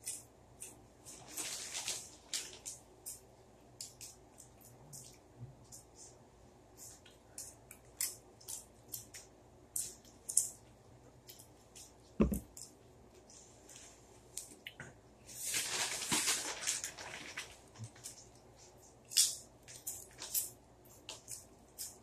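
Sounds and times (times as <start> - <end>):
plastic chip bag crinkling: 1.1 - 2.8, 15.3 - 18.3, 19.1 - 21.2.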